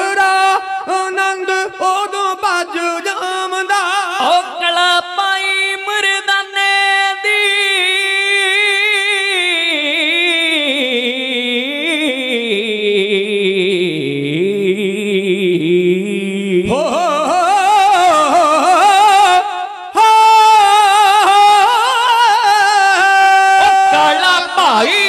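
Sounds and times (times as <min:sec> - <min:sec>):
men singing a long note: 0:16.7 - 0:25.0.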